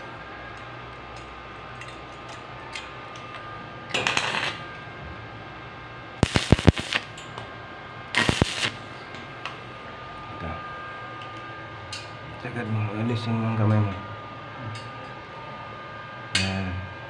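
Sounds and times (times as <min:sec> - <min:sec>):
crackling welding arc: 0:03.1 - 0:04.7, 0:06.2 - 0:07.3, 0:08.1 - 0:08.9.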